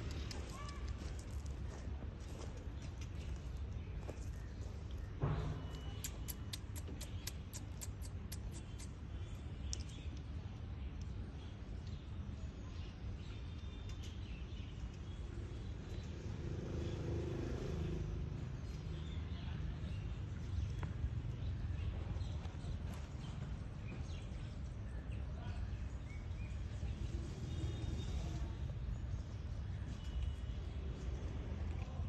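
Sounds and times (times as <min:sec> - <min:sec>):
sharp high ticks or chirps: 0:05.9 - 0:09.0.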